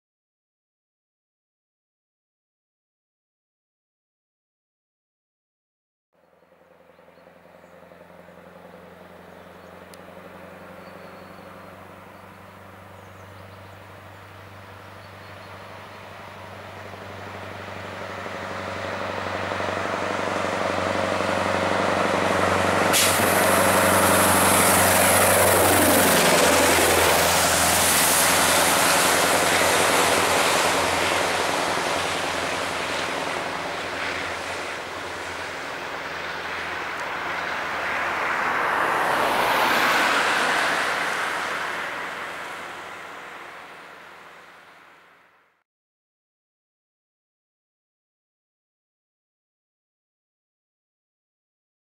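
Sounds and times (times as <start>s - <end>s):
diesel truck passing: 6.3s - 45.5s
air brake hiss: 22.9s - 23.7s.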